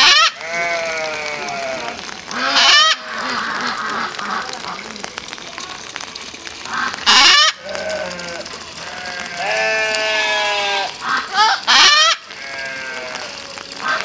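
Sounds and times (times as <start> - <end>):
wavering macaw calls: 0.0 - 4.8, 6.7 - 8.3, 9.9 - 12.4
macaws squawking: 2.3 - 4.9, 6.7 - 8.2, 9.9 - 12.7.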